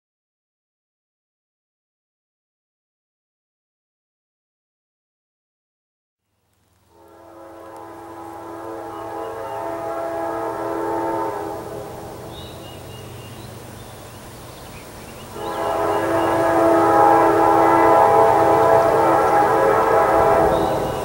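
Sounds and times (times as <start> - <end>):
low rumble of approaching train: 6.8 - 21.0
locomotive air horn blasts: 6.9 - 12.7, 15.3 - 21.0.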